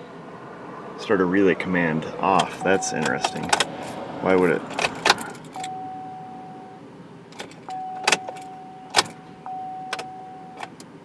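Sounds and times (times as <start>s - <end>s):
ignition key clicks: 2.4s - 3.7s, 4.4s - 5.9s, 7.4s - 10.9s
electronic chime tone: 7.7s - 10.6s.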